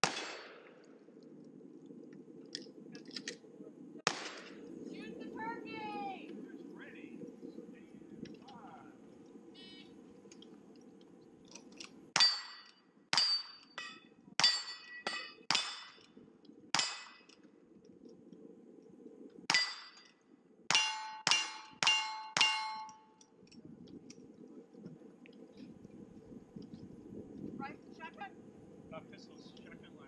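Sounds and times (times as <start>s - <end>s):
rifle shots: 0.0s - 0.8s, 4.0s - 4.6s
steel plates clanging: 20.7s - 23.1s.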